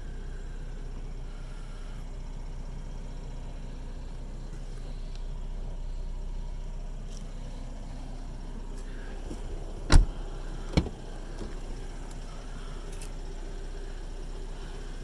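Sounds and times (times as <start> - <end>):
steady low hum: 0.0 - 15.0
car door shutting: 9.2 - 11.8.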